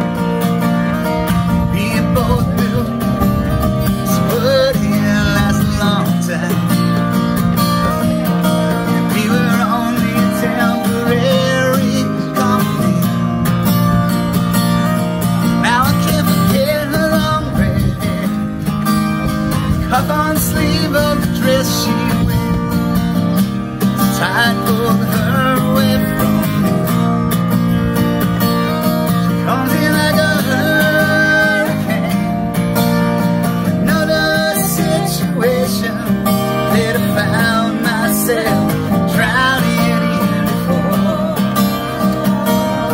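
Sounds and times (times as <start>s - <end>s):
acoustic guitar: 0.0s - 42.9s
person singing: 33.8s - 42.9s.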